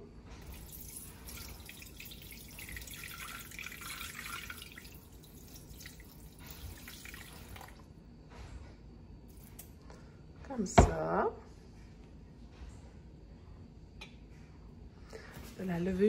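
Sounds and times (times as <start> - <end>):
water pouring into a steel bowl: 0.4 - 7.8.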